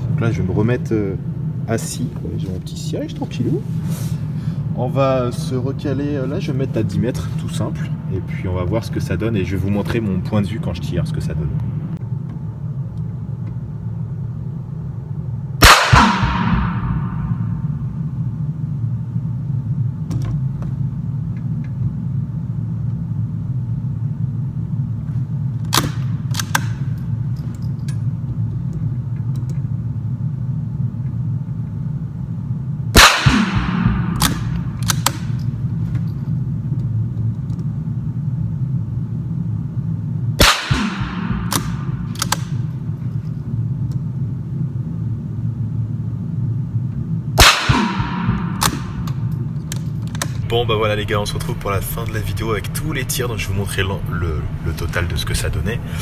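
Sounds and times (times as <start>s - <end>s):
steady low hum: 0.0s - 56.0s
rifle shots with echo: 15.6s - 17.6s, 33.0s - 35.4s, 40.4s - 42.6s, 47.4s - 49.1s
metallic bolt clicks: 25.6s - 28.0s, 34.2s - 36.1s, 41.5s - 42.6s.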